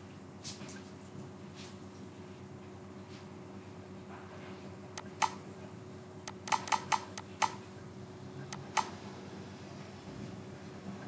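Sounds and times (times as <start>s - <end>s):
faint steady hum: 0.0s - 11.0s
computer mouse clicking: 5.0s - 5.4s, 6.3s - 7.6s, 8.5s - 8.9s.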